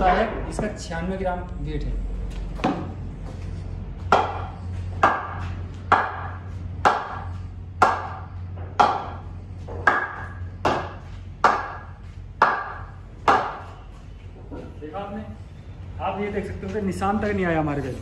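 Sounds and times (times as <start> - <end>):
low hum: 0.0 - 17.2
ball knocking on wooden bat: 4.0 - 13.7.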